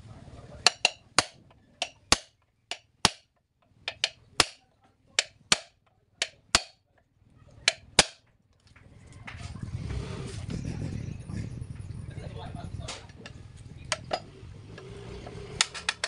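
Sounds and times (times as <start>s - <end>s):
hammer striking metal punch: 0.6s - 4.6s, 5.2s - 6.8s, 7.7s - 8.2s.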